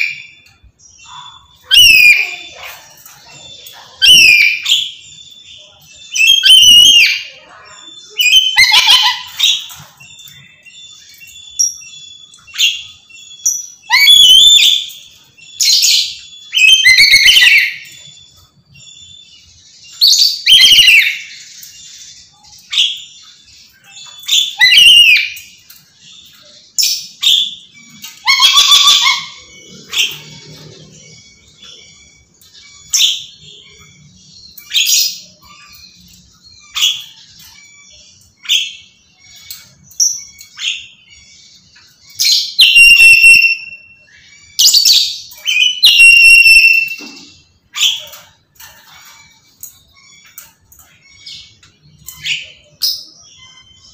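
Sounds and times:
parrot screaming: 1.2s - 2.8s, 4.0s - 4.8s, 6.2s - 9.8s, 28.1s - 31.0s, 42.6s - 43.8s, 44.7s - 47.0s.

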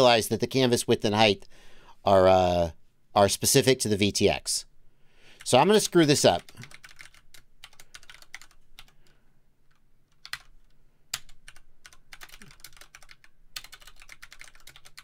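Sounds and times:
typing on computer keyboard: 6.4s - 9.1s, 9.7s - 10.5s, 11.1s - 15.0s.

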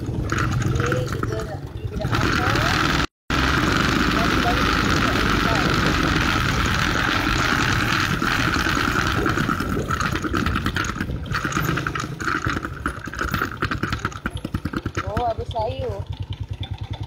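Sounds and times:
small motorcycle engine: 0.0s - 17.0s
wind buffeting microphone: 3.7s - 15.4s.

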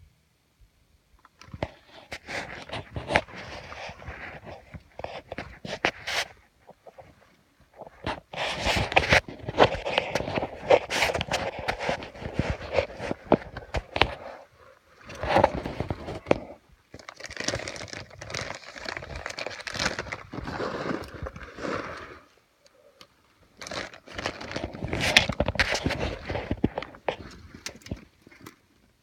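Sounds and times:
clothing scraping against rock: 1.6s - 22.3s, 23.6s - 27.6s.

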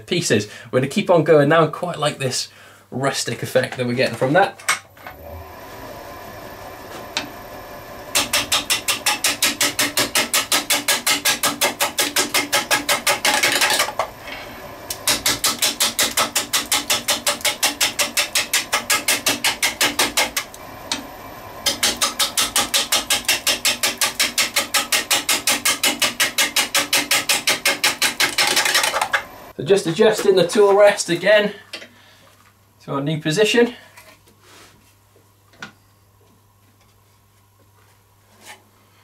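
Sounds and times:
lathe running quietly: 4.9s - 29.6s
gouge clattering on spinning wood: 8.2s - 14.1s.

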